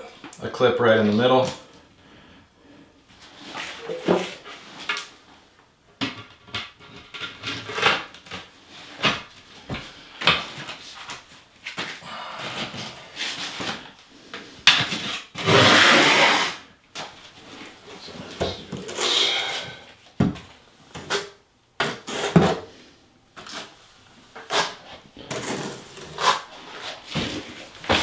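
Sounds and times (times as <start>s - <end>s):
trowel scraping on wall: 15.0s - 16.6s, 21.0s - 22.6s, 24.4s - 28.0s.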